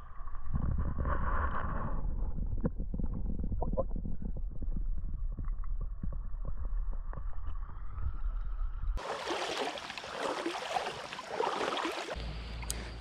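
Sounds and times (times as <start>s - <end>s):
muffled underwater rumble: 0.0s - 9.0s
splashing in shallow water: 9.0s - 13.0s.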